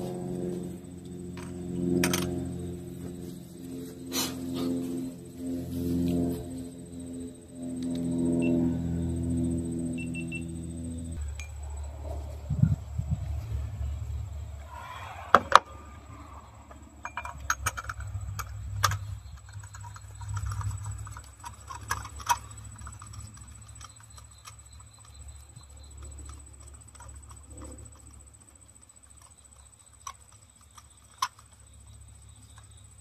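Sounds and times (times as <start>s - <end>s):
low steady hum: 0.0s - 33.0s
hands clicking and tapping parts: 17.0s - 33.0s.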